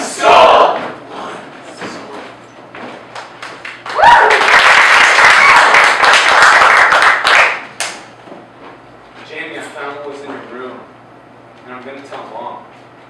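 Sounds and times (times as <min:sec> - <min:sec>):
footsteps on stage floor: 0:00.0 - 0:03.8, 0:08.0 - 0:10.6
audience applause: 0:03.2 - 0:07.9.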